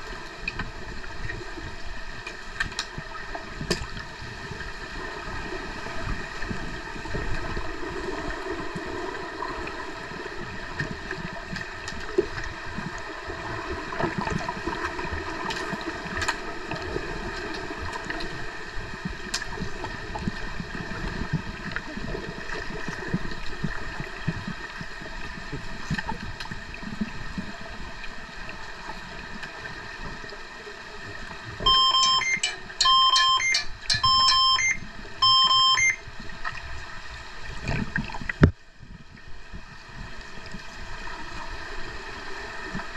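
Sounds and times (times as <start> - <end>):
underwater electronic buzzer beeps: 31.6 - 36.1.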